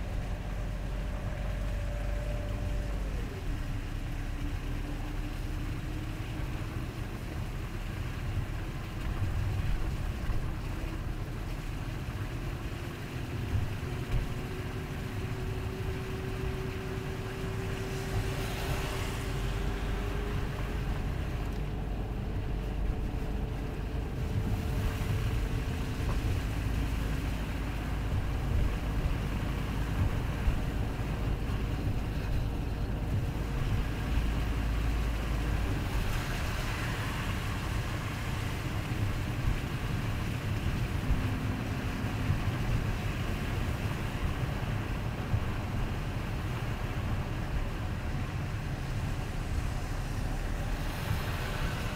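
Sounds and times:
car road and engine rumble: 0.0s - 51.9s
tyre hiss on wet road: 18.0s - 21.2s, 47.6s - 51.9s.

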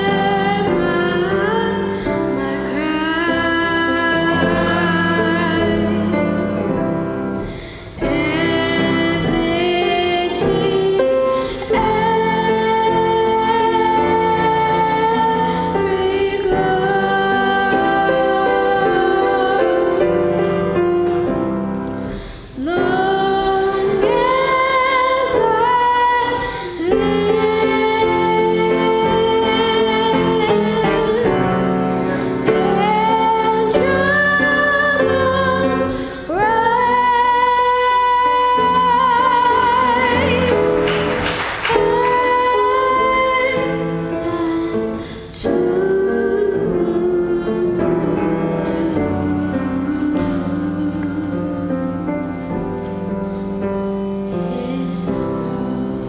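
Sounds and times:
girl singing into a microphone: 0.0s - 20.3s, 22.1s - 40.8s, 41.7s - 52.6s, 54.3s - 56.0s
singer breathing: 7.4s - 8.0s, 22.0s - 22.6s, 31.8s - 32.5s.

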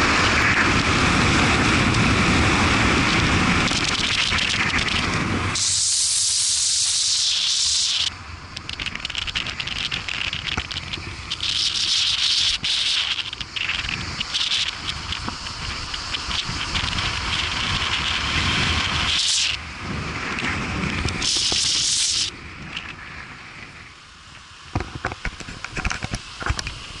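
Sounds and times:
wind buffeting microphone: 0.0s - 5.9s, 8.1s - 23.9s
wind and road noise: 0.0s - 27.0s.

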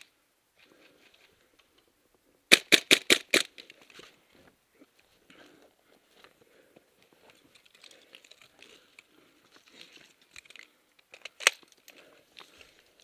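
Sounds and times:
sharp crack: 2.5s - 3.7s
rustling gear and clothing: 3.6s - 13.0s.

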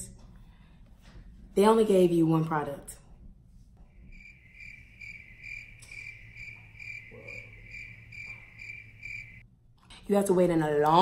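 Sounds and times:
crickets chirping: 4.0s - 9.4s.

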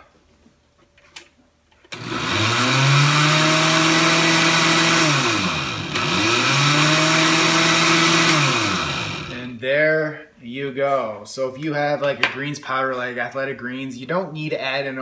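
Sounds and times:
countertop blender running: 1.9s - 9.4s.

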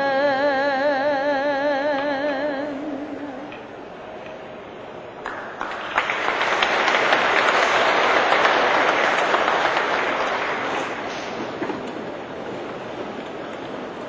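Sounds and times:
audience applauding: 5.2s - 13.8s.

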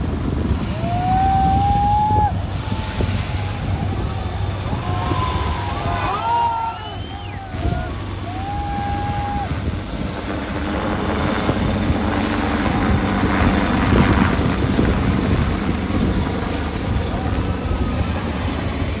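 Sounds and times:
helicopter rotor chop: 0.0s - 19.0s
crowd voices: 0.7s - 9.6s, 16.7s - 19.0s.

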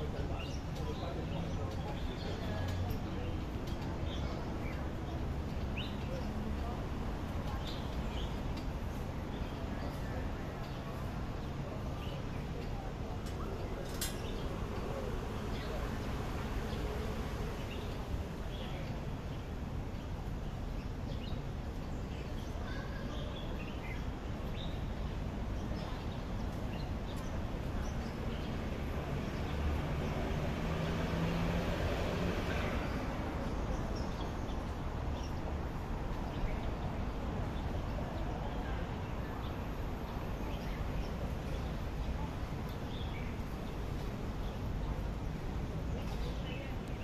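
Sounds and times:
distant traffic hum: 0.0s - 47.0s.

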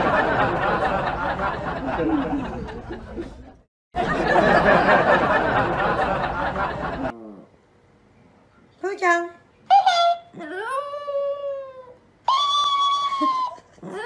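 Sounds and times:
crowd laughing and chattering: 0.0s - 7.1s.

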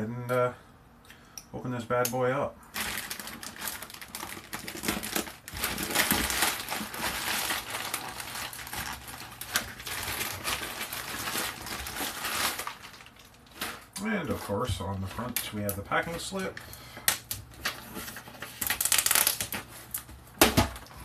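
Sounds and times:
plastic crinkling and rustling: 2.7s - 21.0s.

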